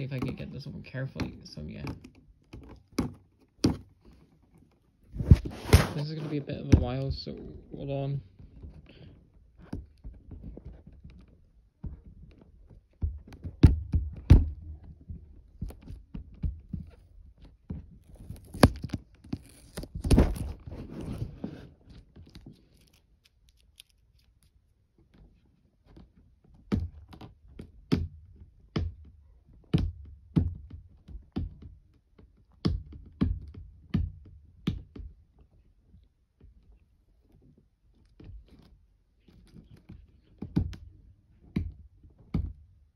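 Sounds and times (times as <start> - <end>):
cardboard scraping and tearing: 5.2 - 6.5, 18.0 - 24.4
box thunks and knocks: 5.2 - 7.2, 13.0 - 14.7.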